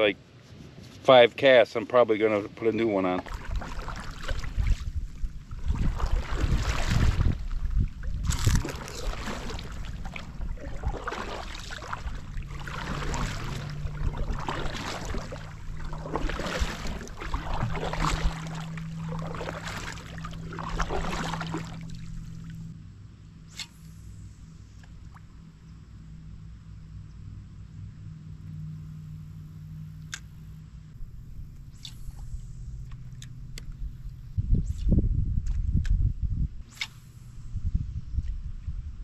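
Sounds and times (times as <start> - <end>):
paddle splashing in water: 3.2 - 22.7.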